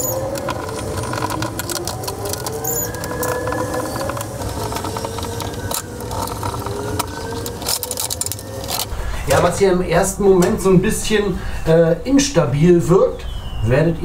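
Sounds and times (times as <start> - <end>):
plastic parts and screws rattling: 0.0 - 9.4
faint wavering whine: 0.0 - 14.0.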